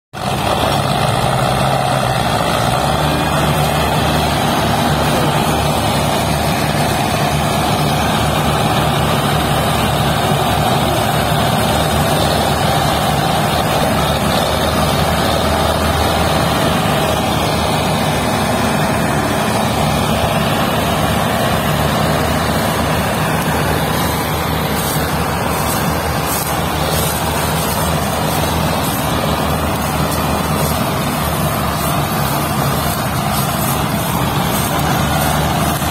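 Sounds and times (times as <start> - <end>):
tractor diesel engines droning: 0.1 - 35.9.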